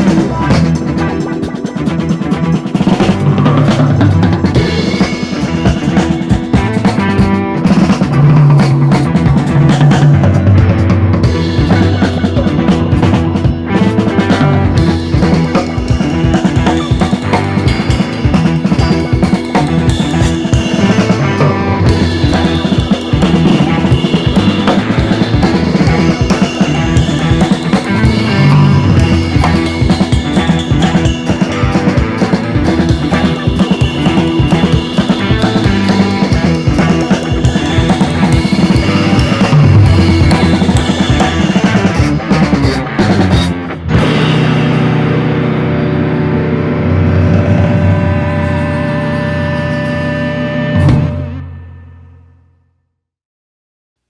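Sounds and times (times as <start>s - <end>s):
drum kit beat and bass music: 0.0s - 51.6s.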